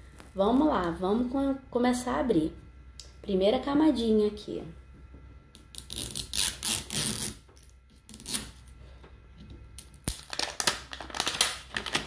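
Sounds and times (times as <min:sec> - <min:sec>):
plastic wrapping crinkling and tearing: 0:09.8 - 0:12.0.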